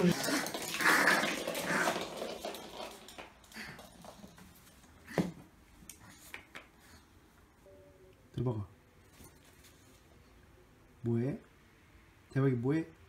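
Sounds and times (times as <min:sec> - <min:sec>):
dog claws scrabbling on floor: 0:00.1 - 0:05.3.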